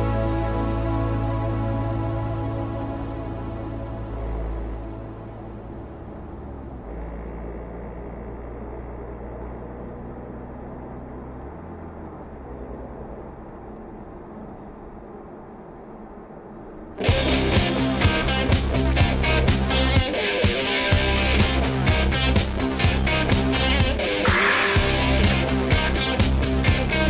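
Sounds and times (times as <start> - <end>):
car engine and road noise: 0.0 - 27.0
loud rock music: 17.0 - 27.0.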